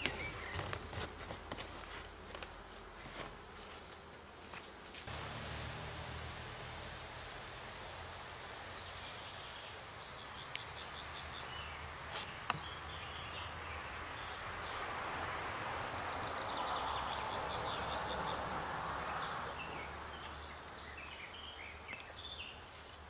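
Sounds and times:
honeybees buzzing: 0.0s - 13.9s.

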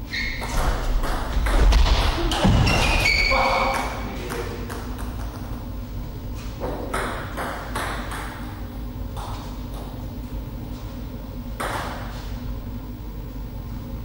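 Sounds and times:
low hall hum: 0.0s - 14.0s
table tennis ball bouncing: 0.4s - 1.6s, 2.3s - 5.6s, 6.6s - 10.0s, 11.6s - 12.1s.

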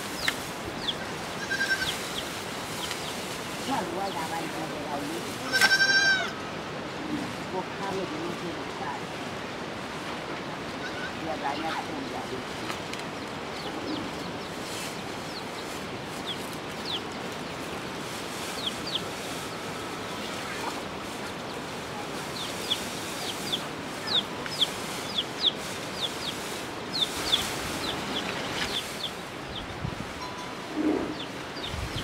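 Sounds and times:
birds chirping: 0.0s - 9.0s, 10.8s - 32.0s
steady hiss: 0.0s - 32.0s.

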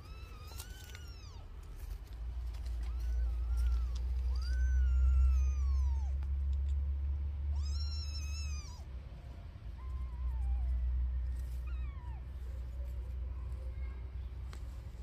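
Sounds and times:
kittens mewing: 0.0s - 1.6s, 2.6s - 6.3s, 7.5s - 12.8s
low steady rumble: 0.0s - 15.0s.

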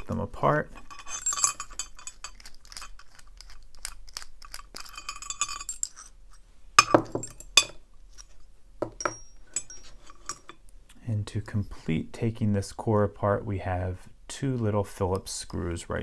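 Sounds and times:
small metal parts clinking: 0.7s - 6.1s, 6.8s - 7.8s, 8.8s - 10.6s.

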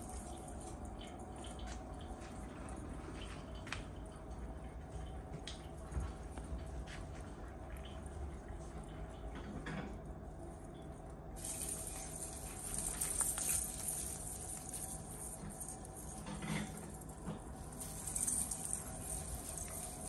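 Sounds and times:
rustling of artificial tree branches: 11.4s - 20.0s.

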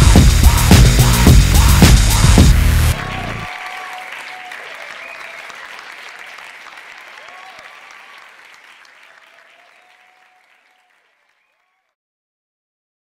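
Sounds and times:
audience applause: 2.8s - 11.9s.

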